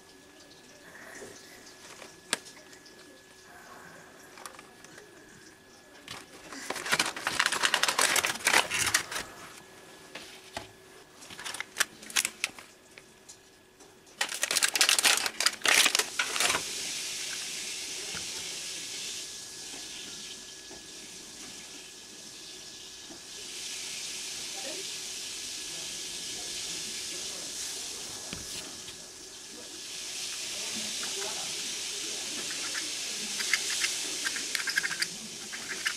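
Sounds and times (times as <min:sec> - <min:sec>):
plastic packaging crinkling: 0:06.0 - 0:09.6, 0:11.2 - 0:12.7, 0:14.2 - 0:16.8, 0:32.4 - 0:35.9.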